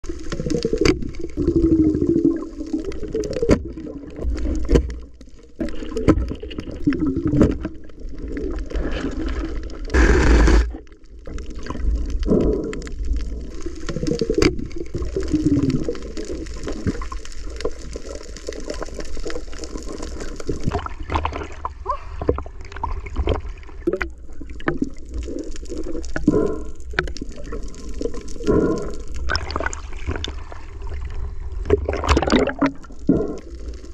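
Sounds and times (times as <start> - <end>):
underwater gurgling and sloshing: 0.0 - 33.9
rush of water noise: 9.9 - 10.8.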